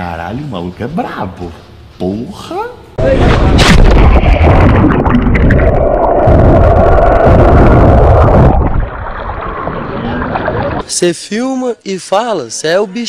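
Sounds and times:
water rushing and bubbling underwater: 3.4s - 10.9s.

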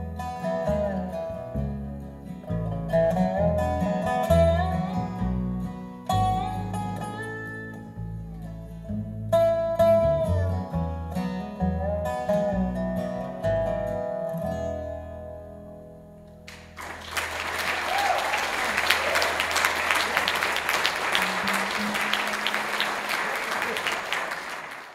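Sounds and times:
plucked upright bass: 0.0s - 16.5s
strummed acoustic guitar: 0.0s - 16.5s.

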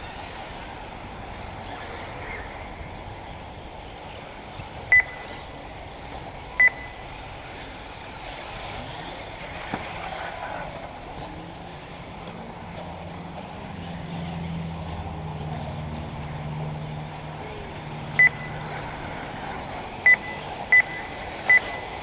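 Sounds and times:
short electronic beeps: 4.9s - 5.3s, 6.6s - 7.0s, 18.2s - 18.6s, 20.0s - 22.0s.

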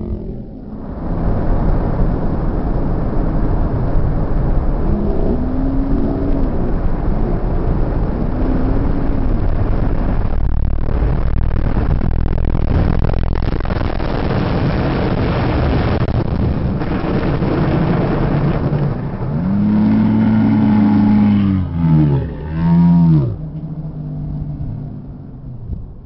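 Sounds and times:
dragster engines roaring: 0.0s - 26.0s
sliding pitched tone: 19.1s - 25.7s.

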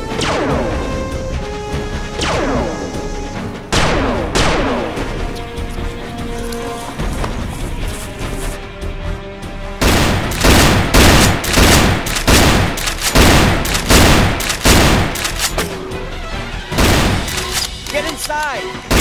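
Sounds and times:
action film music: 0.0s - 19.0s
rapid gunfire bursts: 9.8s - 15.6s, 16.8s - 18.3s.

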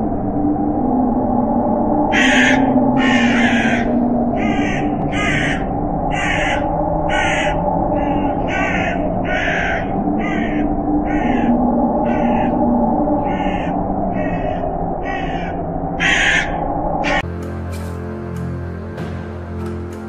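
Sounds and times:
steady low drone: 0.0s - 20.0s
crows cawing: 2.1s - 17.2s.

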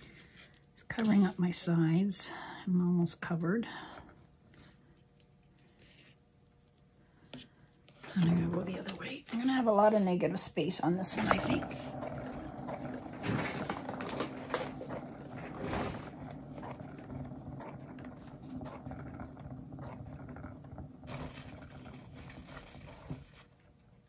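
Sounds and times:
turntable rumbling and rattling: 8.0s - 23.4s.

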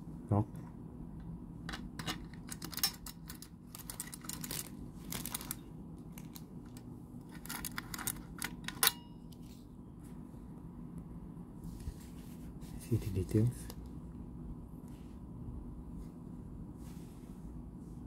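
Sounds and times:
faint metallic ring: 8.8s - 9.4s.

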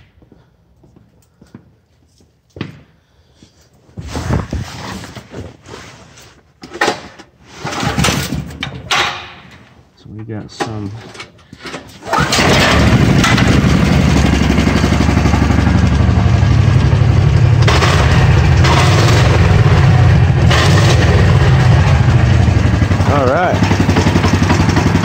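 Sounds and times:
engine pull-started: 11.7s - 15.1s, 20.4s - 22.3s.

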